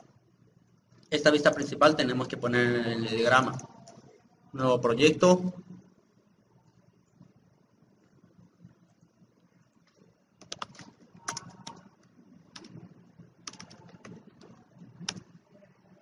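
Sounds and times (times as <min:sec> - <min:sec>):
keyboard key clicks: 0:10.4 - 0:11.9.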